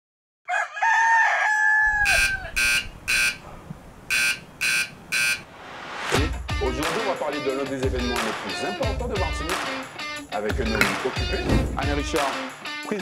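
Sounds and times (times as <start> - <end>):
rooster crowing: 0.5 - 3.4
alarm clock beeping: 2.2 - 3.4, 4.1 - 5.4.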